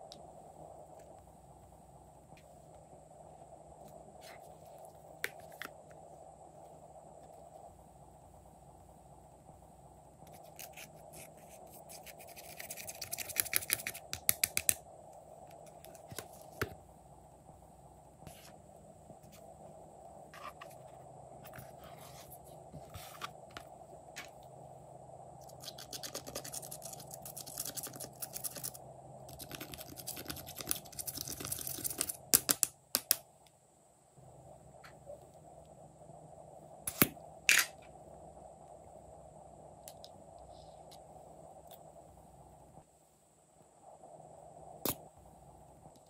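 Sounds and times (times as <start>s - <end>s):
pick scraping eyeshadow powder: 10.3s - 14.8s, 25.4s - 32.2s.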